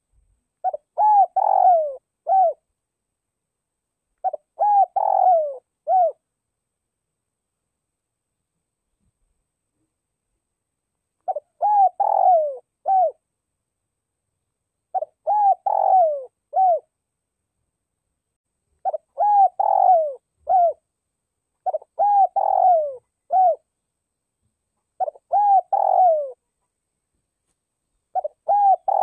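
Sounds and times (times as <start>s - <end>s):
dove cooing: 0.6s - 2.6s, 4.2s - 6.2s, 11.3s - 13.2s, 14.9s - 16.9s, 18.8s - 20.8s, 21.6s - 23.7s, 25.0s - 26.4s, 28.1s - 29.0s.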